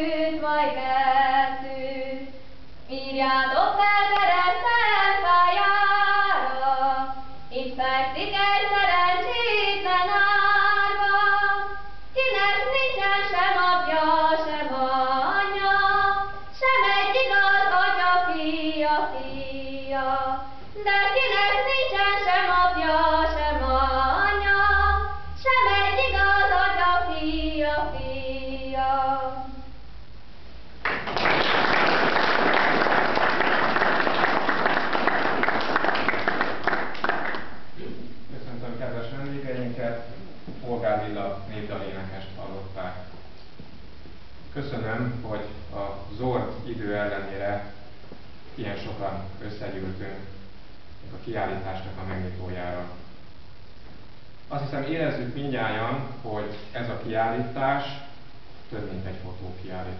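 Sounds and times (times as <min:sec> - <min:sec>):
woman singing unaccompanied: 0:00.0 - 0:29.8.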